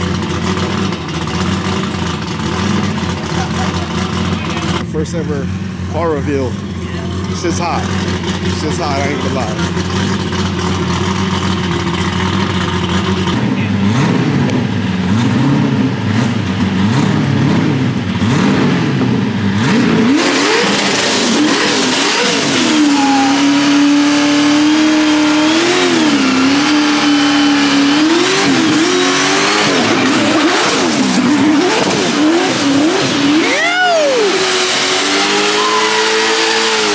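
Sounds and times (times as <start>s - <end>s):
car engine revving: 0.0s - 36.9s
spinning tyres hissing and squealing: 19.4s - 36.9s.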